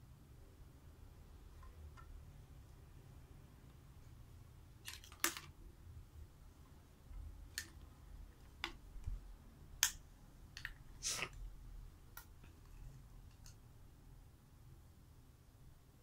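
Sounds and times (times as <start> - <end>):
plastic toy pieces clicking: 4.8 - 5.5.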